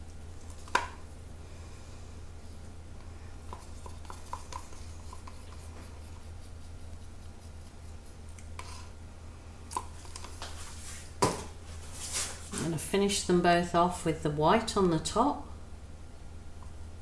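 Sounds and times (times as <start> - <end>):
stick scraping a plastic cup: 3.5 - 8.9.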